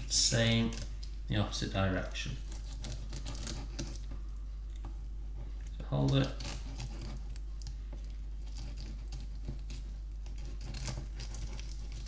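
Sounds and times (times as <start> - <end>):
steady low hum: 0.0 - 12.0
knife scraping over fish bones: 2.4 - 4.0, 6.0 - 7.5, 8.4 - 12.0.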